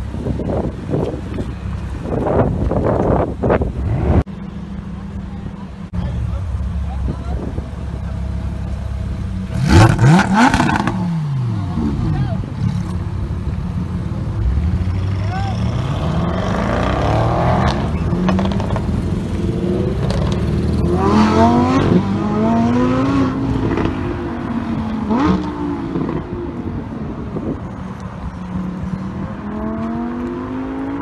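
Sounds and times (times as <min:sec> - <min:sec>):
car engines accelerating hard: 0:00.0 - 0:31.0
exhaust cracks: 0:17.6 - 0:20.8.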